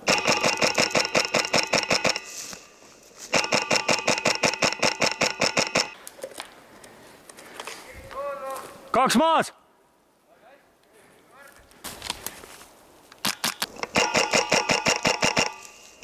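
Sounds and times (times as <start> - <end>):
airsoft rifle full-auto bursts: 0.0 - 2.4, 3.3 - 6.0, 13.2 - 15.8
single rifle clicks: 13.2 - 15.7.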